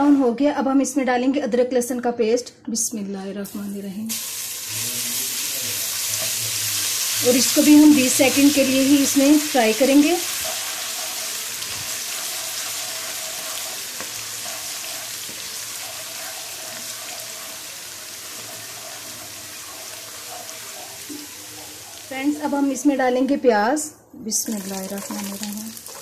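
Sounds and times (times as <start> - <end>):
spices sizzling in hot oil: 3.4 - 22.8, 24.4 - 26.0
wooden spatula stirring: 8.0 - 22.0.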